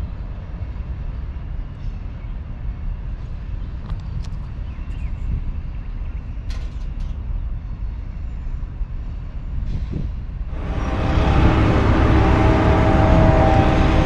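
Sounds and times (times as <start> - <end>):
freight train cars rumbling: 0.0 - 14.0
loud sound with steady tones: 10.5 - 14.0.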